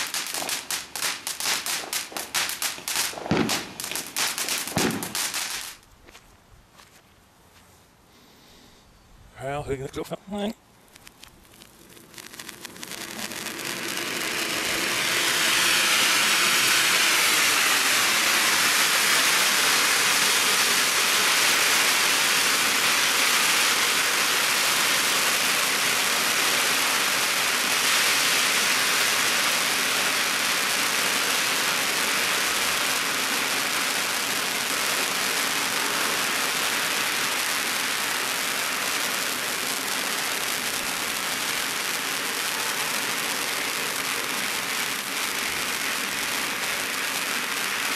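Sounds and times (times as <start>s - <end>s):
firework fountain hissing: 0.0s - 5.9s, 9.9s - 47.9s.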